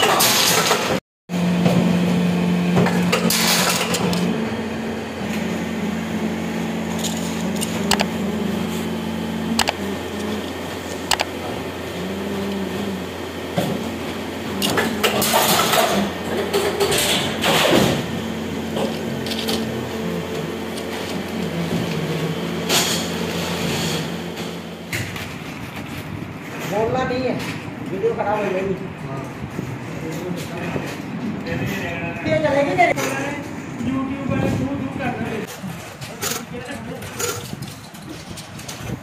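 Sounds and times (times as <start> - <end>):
factory machinery humming: 0.0 - 39.0
sharp clicks: 7.6 - 8.1, 9.5 - 9.9, 11.1 - 11.3.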